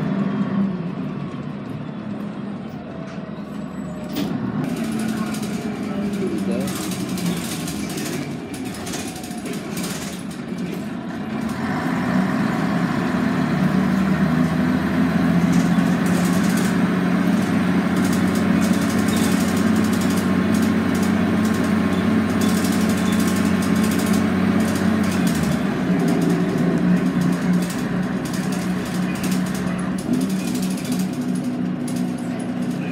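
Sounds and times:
bus diesel engine: 0:00.0 - 0:32.9
road noise: 0:00.0 - 0:32.9.

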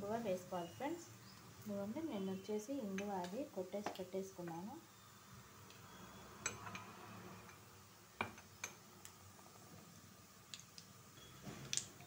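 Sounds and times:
seeds popping in oil: 0:10.4 - 0:12.0.

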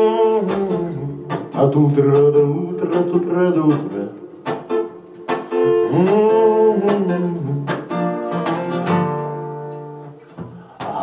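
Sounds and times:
man singing: 0:00.0 - 0:04.4, 0:05.6 - 0:08.0, 0:10.5 - 0:11.0
acoustic guitar strumming: 0:00.0 - 0:11.0.

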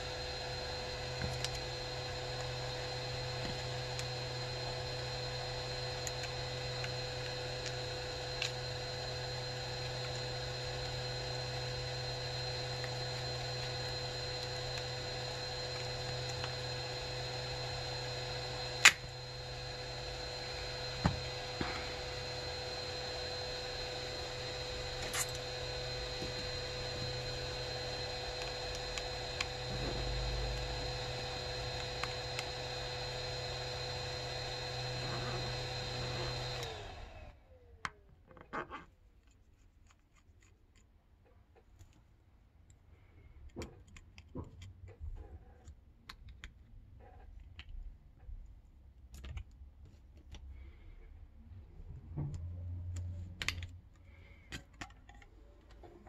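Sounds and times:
electric blower whining: 0:00.0 - 0:37.7.

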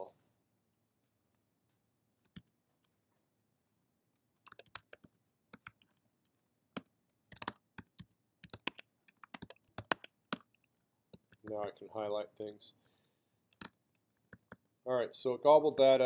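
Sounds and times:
keyboard typing: 0:02.2 - 0:03.0, 0:04.4 - 0:11.7, 0:12.3 - 0:14.7.

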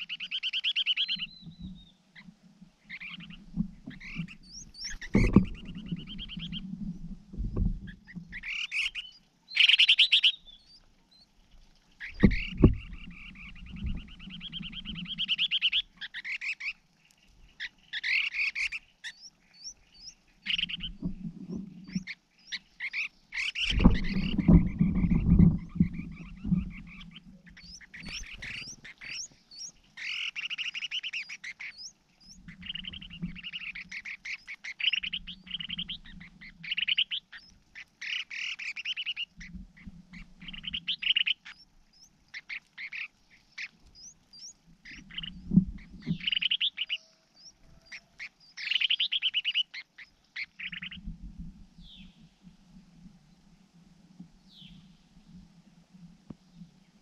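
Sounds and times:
animal rattling calls: 0:12.0 - 0:16.7, 0:22.9 - 0:31.9.

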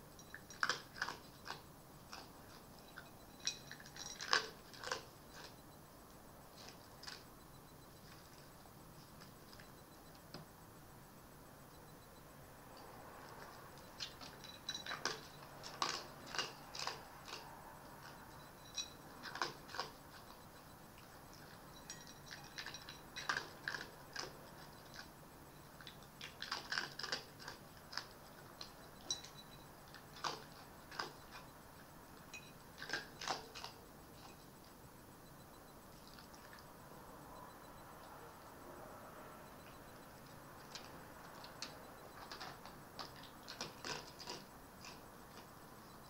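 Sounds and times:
fox crunching food: 0:00.0 - 0:07.4, 0:08.0 - 0:10.4, 0:12.8 - 0:34.8, 0:35.9 - 0:36.8, 0:39.7 - 0:45.9.

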